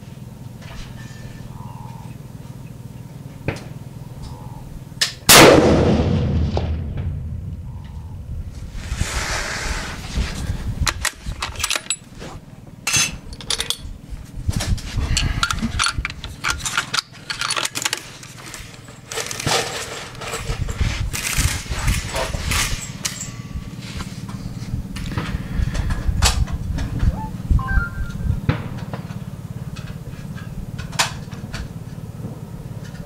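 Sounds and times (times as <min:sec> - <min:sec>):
steady low rumble: 0:01.3 - 0:17.0, 0:20.2 - 0:32.2
rifle handling clicks and rattles: 0:10.8 - 0:12.1, 0:12.9 - 0:13.9, 0:15.2 - 0:23.3.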